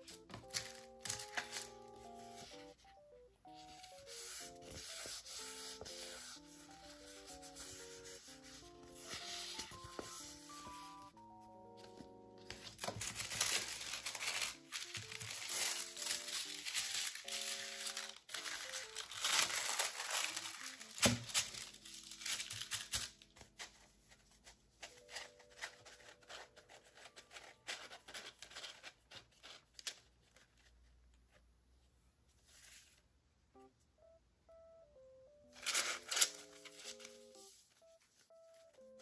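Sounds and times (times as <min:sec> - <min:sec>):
plastic sheets rustling: 0:00.0 - 0:02.9, 0:03.5 - 0:11.1, 0:11.7 - 0:30.8, 0:35.6 - 0:39.0
light background music: 0:00.0 - 0:29.6, 0:32.4 - 0:39.0
tissue paper crinkling: 0:03.6 - 0:11.1, 0:11.7 - 0:30.8, 0:35.6 - 0:39.0
plastic sheet snapping: 0:17.8 - 0:23.2.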